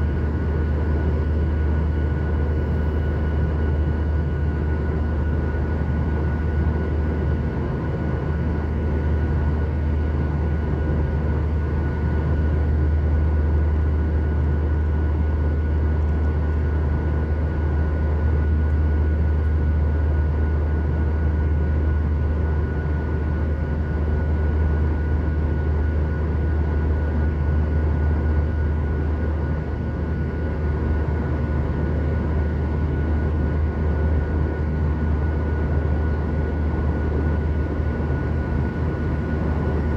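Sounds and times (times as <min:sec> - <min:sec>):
jet engine and airflow drone: 0:00.0 - 0:39.9.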